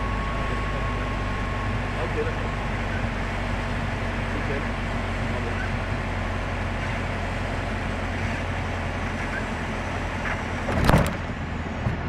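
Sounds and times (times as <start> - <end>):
aircraft engine droning: 0.0 - 12.0
loud crackling thump: 10.7 - 11.3.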